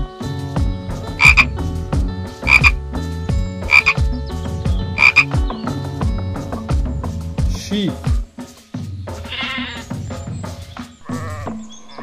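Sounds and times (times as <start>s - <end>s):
frog croaking: 1.2s - 1.6s, 2.4s - 2.8s, 3.6s - 4.0s, 5.0s - 5.4s.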